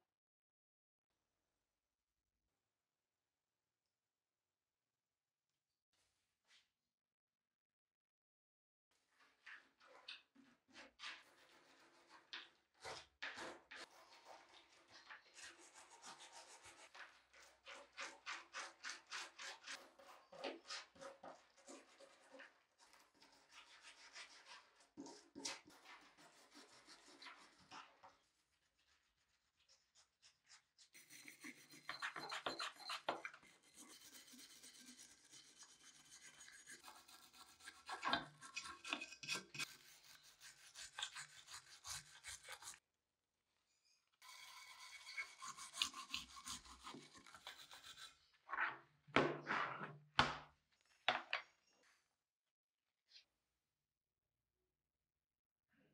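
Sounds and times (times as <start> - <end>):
scraper scraping rusty steel: 30.9 - 42.8
wire brush scrubbing metal: 31.0 - 42.8.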